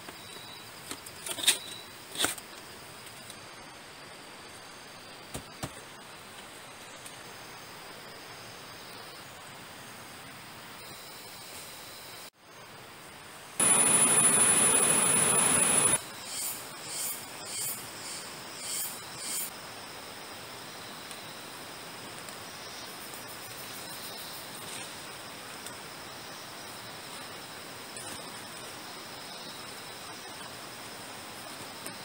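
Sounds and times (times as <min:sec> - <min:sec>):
insects buzzing: 0:00.0 - 0:32.0
high-pitched insect drone: 0:13.6 - 0:19.6
short pulsing insect calls: 0:13.6 - 0:19.6.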